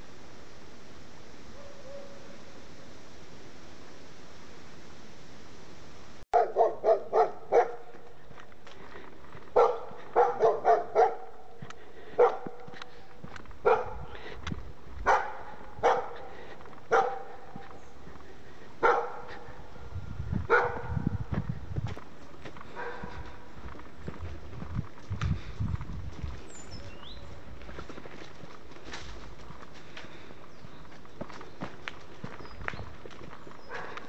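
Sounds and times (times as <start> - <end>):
dog barking: 1.6 - 2.3, 6.4 - 8.0, 9.5 - 12.8, 13.6 - 14.1, 15.0 - 17.6, 18.8 - 19.6, 20.5 - 21.1, 22.8 - 23.3.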